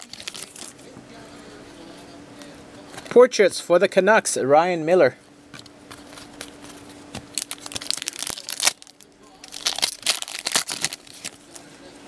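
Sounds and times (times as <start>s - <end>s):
cards rustling and crackling: 0.0s - 0.8s, 5.5s - 11.7s.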